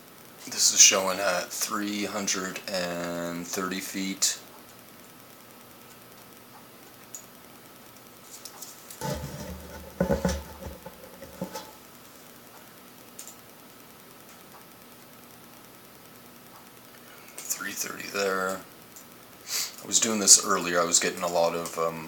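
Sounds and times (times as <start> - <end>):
faint steady hiss: 0.0 - 22.0
knocks and rustling: 9.0 - 11.8.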